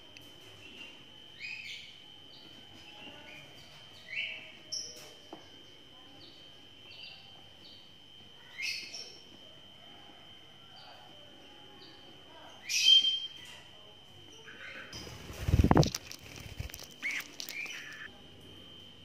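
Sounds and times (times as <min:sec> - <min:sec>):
lovebirds harsh chirps: 0:15.0 - 0:18.1.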